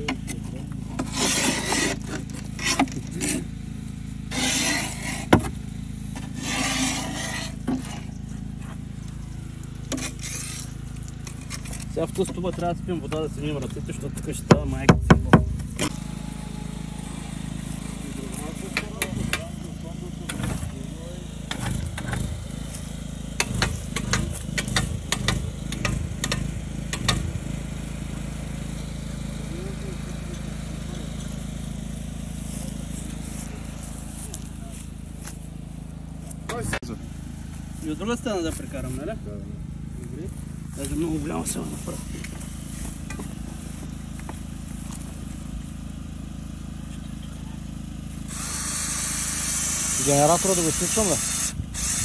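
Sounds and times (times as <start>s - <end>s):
generator engine running: 0.0s - 52.0s
scraper scraping wet clay off metal: 1.0s - 3.4s, 4.3s - 5.4s, 6.2s - 8.0s, 9.9s - 10.8s
steady low hum: 29.4s - 52.0s.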